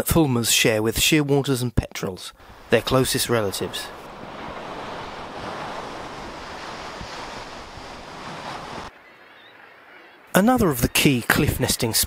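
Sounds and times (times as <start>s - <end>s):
wind: 0.0s - 12.0s
sea surf: 2.4s - 12.0s.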